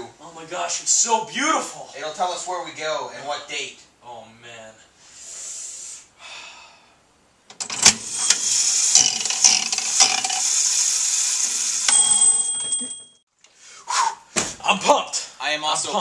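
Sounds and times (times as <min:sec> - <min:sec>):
slot machine reels whirring: 0:07.6 - 0:13.0
high ringing tone: 0:11.9 - 0:13.2.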